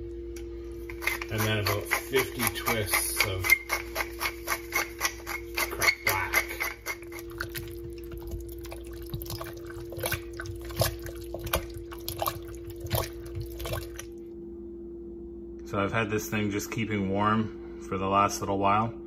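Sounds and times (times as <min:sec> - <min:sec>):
low hum: 0:00.0 - 0:19.0
thick chili squelching: 0:00.8 - 0:14.2.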